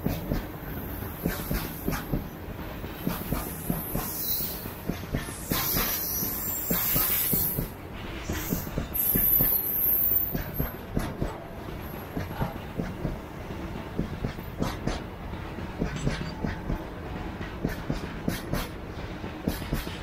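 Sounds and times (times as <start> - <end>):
train wheels clattering over rail joints: 0.0 - 20.0.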